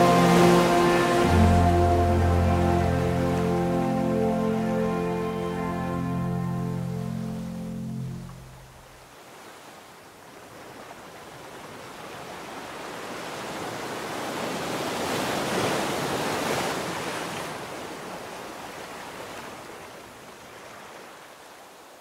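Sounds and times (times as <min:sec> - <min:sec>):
ocean wave washing: 0:00.0 - 0:09.7.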